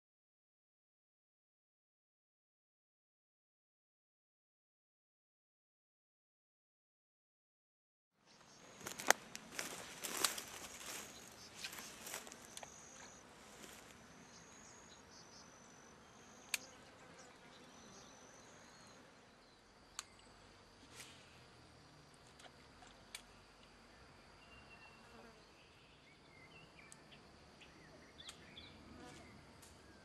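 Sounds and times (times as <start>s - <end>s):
insects calling: 8.3s - 30.0s
rustling: 8.7s - 13.9s
sharp clicks: 16.5s - 16.7s.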